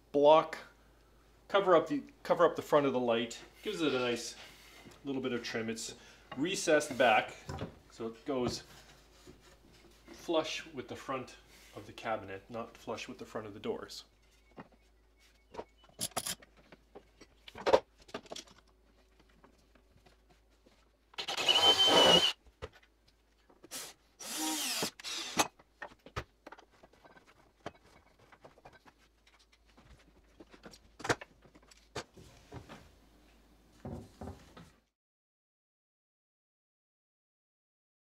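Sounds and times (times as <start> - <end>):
handling clicks and knocks: 15.5 - 20.4
power drill running: 21.2 - 22.4, 23.8 - 25.5.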